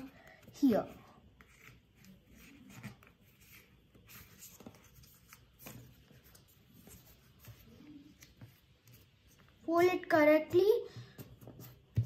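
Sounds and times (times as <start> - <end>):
paper rustling and crinkling: 1.4 - 8.6.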